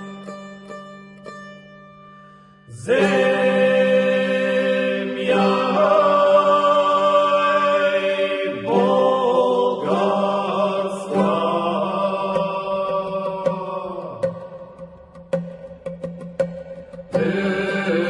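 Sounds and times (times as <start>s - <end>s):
person chanting slow melody: 2.7s - 14.5s, 17.2s - 18.0s.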